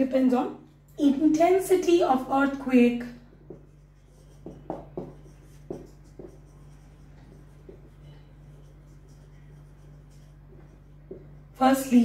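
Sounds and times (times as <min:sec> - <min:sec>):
marker writing on whiteboard: 0:03.2 - 0:11.6.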